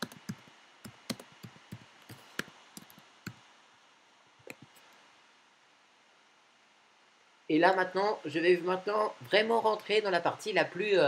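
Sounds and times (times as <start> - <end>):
computer keyboard typing: 0.0 - 3.4.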